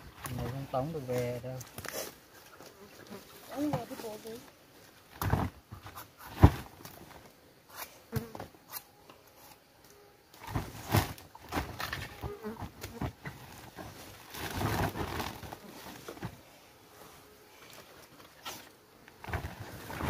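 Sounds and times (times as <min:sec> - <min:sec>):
insect buzzing: 0:01.7 - 0:20.0
plastic sack rustling: 0:03.4 - 0:04.4, 0:10.4 - 0:16.5, 0:18.3 - 0:20.0.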